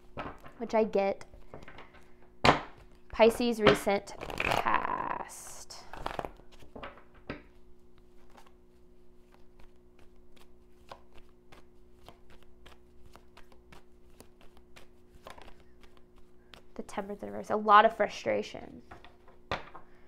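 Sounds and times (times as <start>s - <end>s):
cards being shuffled by hand: 0.0s - 17.6s.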